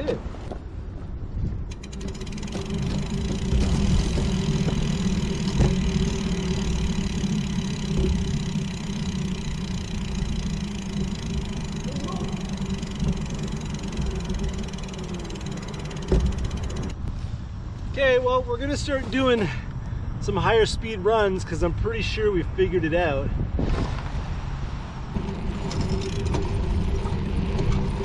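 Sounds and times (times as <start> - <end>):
wheels rolling on steel rail: 1.6 - 17.0, 25.1 - 28.0.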